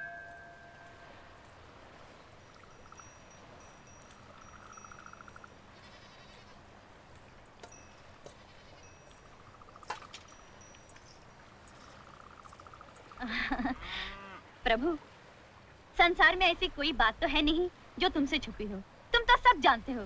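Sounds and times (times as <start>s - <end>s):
light clicks or jingles: 0.0s - 13.3s
insects chirping: 0.0s - 13.8s.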